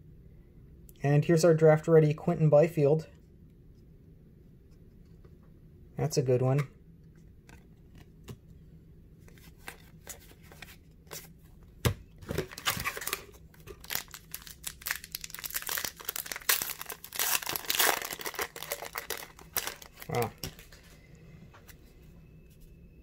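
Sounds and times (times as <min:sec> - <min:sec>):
foil pack tearing and crinkling: 0:13.8 - 0:20.4.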